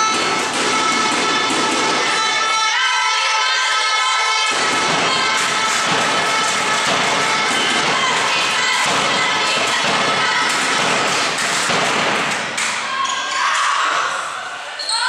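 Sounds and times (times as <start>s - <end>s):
thumps and claps: 0.0s - 2.3s, 4.5s - 12.9s
crowd cheering and shouting: 0.0s - 15.0s.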